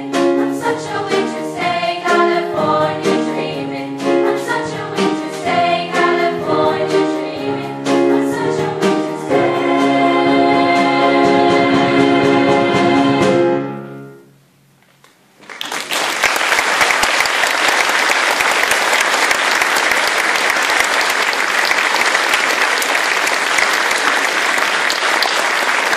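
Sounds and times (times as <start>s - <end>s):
girls' choir holding chord: 0.0s - 14.1s
audience applause: 15.4s - 25.9s.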